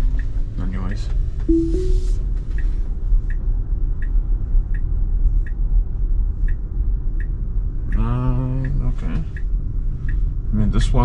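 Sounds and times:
turn signal ticking: 0:00.0 - 0:00.5, 0:03.3 - 0:11.0.

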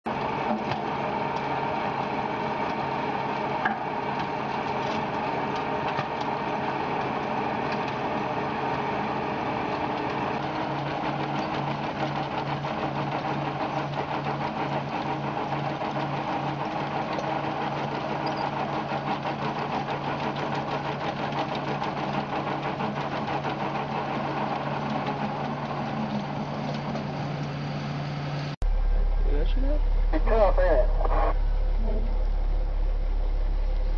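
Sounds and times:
diesel engine under load: 0:00.0 - 0:33.9.

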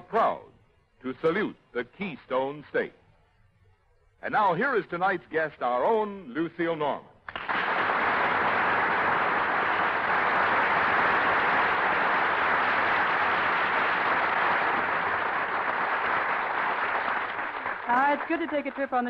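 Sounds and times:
audience applauding: 0:07.3 - 0:19.0.

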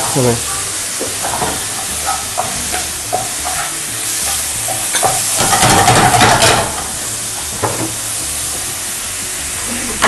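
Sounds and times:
chicken sizzling in a pan: 0:00.0 - 0:10.0.

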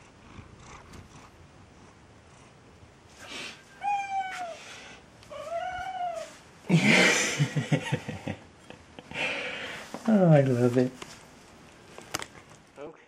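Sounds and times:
cat meowing: 0:03.8 - 0:04.6.

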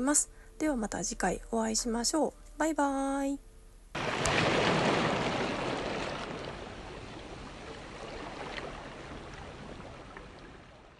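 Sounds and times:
ocean surf washing onto beach: 0:04.0 - 0:10.9.

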